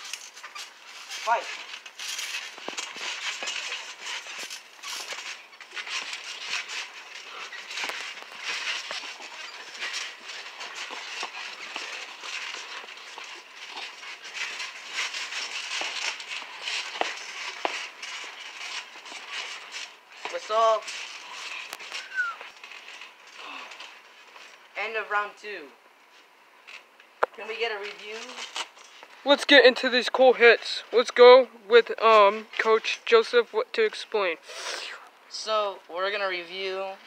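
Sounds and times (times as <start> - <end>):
feet scuffling: 0.0 - 25.4, 26.0 - 35.2
trampoline rattling and creaking: 0.0 - 37.0.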